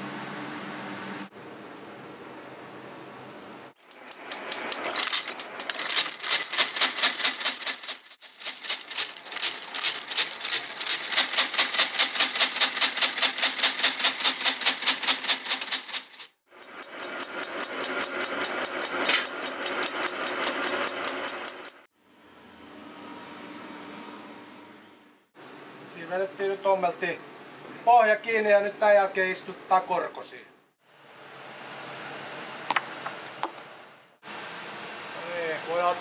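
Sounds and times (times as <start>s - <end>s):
stitching machine sewing: 3.9s - 21.8s.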